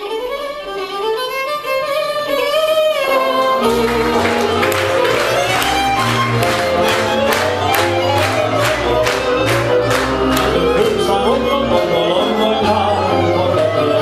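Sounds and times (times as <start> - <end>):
violin and double bass playing: 0.0 - 14.0
man singing: 10.3 - 14.0.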